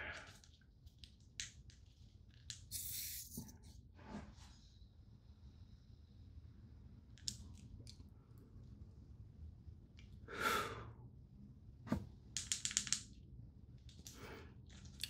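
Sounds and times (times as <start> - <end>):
person exhaling a long breath: 10.3 - 11.0.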